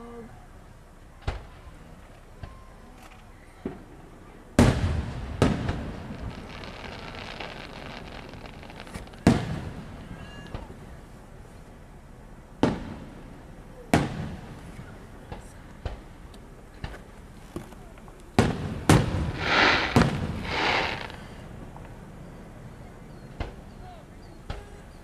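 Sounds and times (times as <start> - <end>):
firework crackling: 3.6 - 22.1
firework shells booming: 4.6 - 10.9, 12.6 - 17.2, 18.4 - 22.0.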